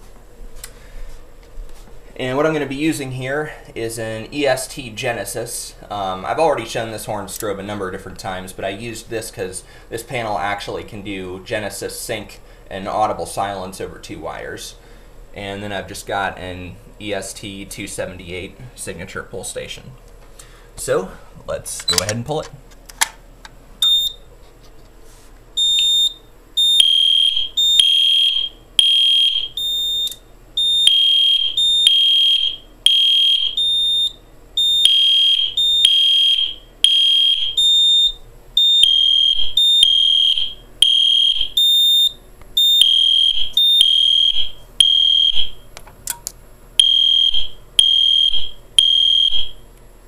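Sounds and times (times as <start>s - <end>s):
fire alarm horn blasts: 25.6s - 45.6s, 46.8s - 49.6s.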